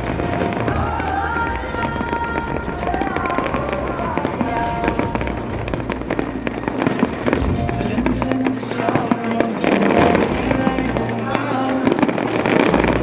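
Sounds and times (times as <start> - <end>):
fireworks bangs and crackles: 0.0 - 13.0
music playing: 0.0 - 13.0.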